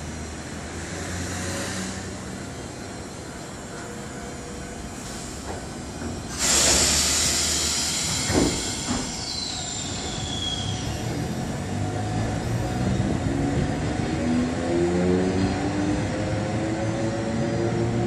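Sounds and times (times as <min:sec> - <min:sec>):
tram motor whine rising: 0:04.8 - 0:18.0
compressed air hiss: 0:06.3 - 0:10.2.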